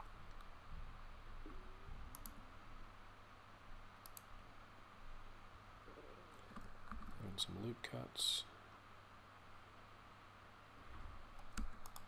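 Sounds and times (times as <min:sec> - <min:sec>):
steady low hum and hiss: 0:00.0 - 0:12.0
computer keyboard and mouse clicks: 0:02.1 - 0:02.4, 0:04.0 - 0:04.3, 0:06.5 - 0:07.2, 0:11.4 - 0:12.0.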